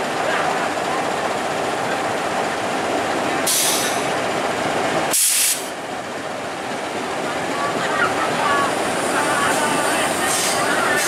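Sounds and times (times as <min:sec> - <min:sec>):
diesel locomotive engine running: 0:00.0 - 0:11.0
air hissing: 0:05.1 - 0:05.7.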